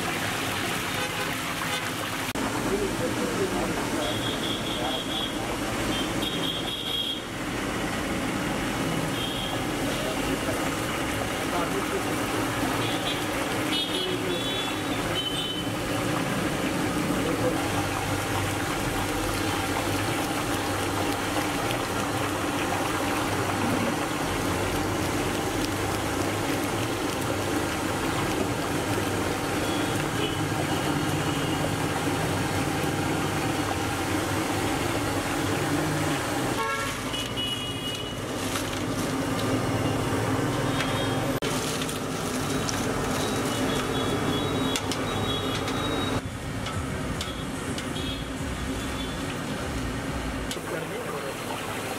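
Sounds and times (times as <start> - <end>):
street traffic: 0.0 - 51.9
vehicle horns tooting: 4.0 - 7.3, 9.1 - 9.7, 12.8 - 15.8, 29.6 - 31.7, 36.6 - 38.3, 43.2 - 46.2
potatoes sizzling in oil: 8.4 - 46.2.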